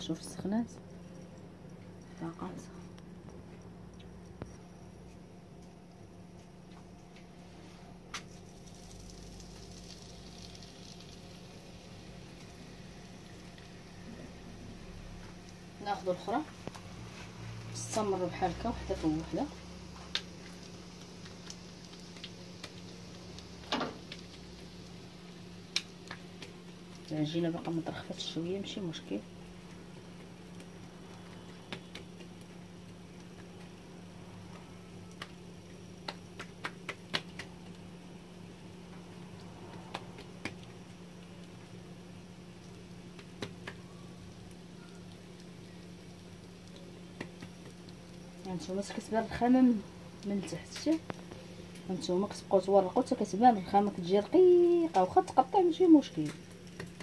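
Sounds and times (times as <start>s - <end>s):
low steady hum: 0.0s - 57.0s
dough slapped by hand on countertop: 36.0s - 37.7s.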